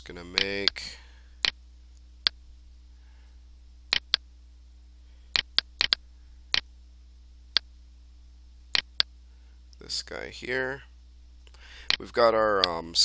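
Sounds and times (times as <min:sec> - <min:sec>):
faint low hum: 0:00.0 - 0:13.0
computer mouse clicking: 0:03.9 - 0:04.2, 0:05.3 - 0:06.6, 0:08.8 - 0:09.1.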